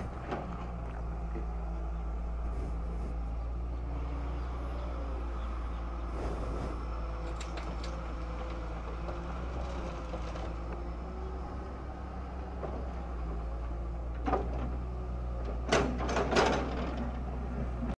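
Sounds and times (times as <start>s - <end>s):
excavator diesel engine running: 0.0s - 18.0s.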